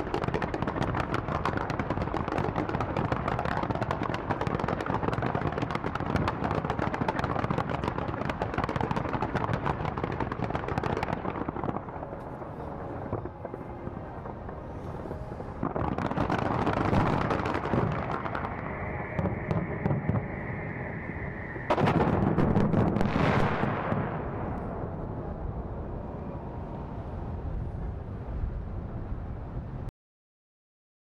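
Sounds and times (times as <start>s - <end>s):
fireworks bangs and crackling: 0.0s - 25.8s.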